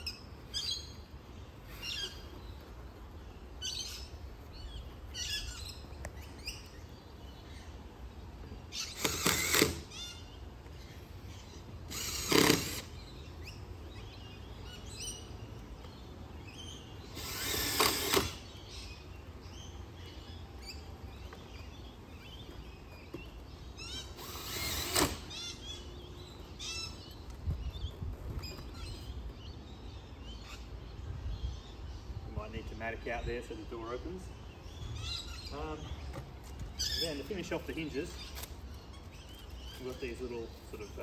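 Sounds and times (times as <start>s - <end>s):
birds chirping: 0.0s - 41.0s
cordless drill driving screws: 8.8s - 9.9s, 11.9s - 12.9s, 17.1s - 18.4s, 24.2s - 25.3s.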